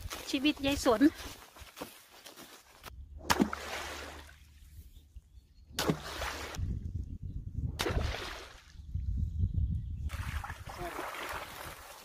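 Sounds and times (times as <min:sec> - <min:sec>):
water splashing and sloshing: 0:01.8 - 0:04.9, 0:05.7 - 0:06.7, 0:07.8 - 0:08.8, 0:10.1 - 0:12.0.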